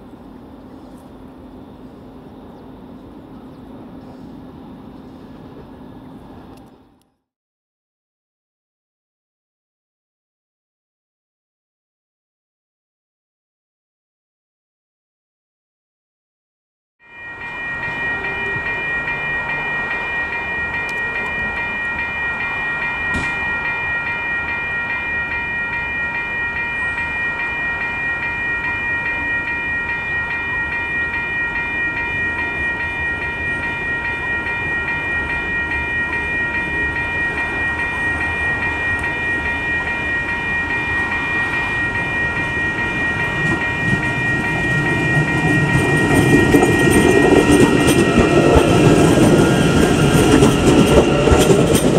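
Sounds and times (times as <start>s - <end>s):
electric train rumble: 0.0s - 7.3s, 17.0s - 51.9s
high-pitched whine: 17.0s - 51.9s.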